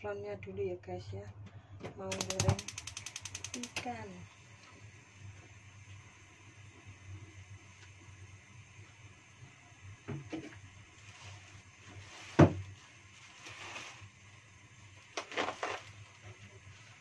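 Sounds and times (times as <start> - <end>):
gas burner rumbling: 0.0 - 17.0.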